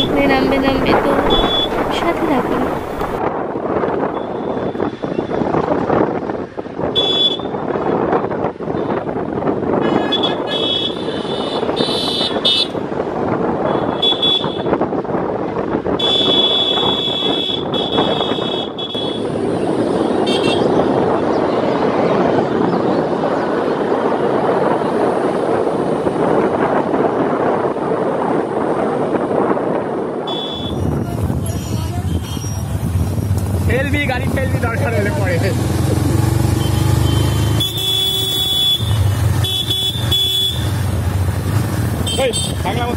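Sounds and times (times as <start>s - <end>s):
wind buffeting microphone: 0.0s - 37.6s
road and engine noise: 0.0s - 42.9s
high-pitched horn toots: 36.6s - 40.7s.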